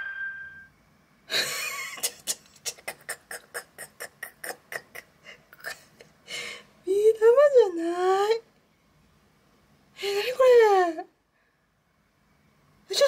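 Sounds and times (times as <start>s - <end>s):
ringing tone: 0.0s - 0.8s.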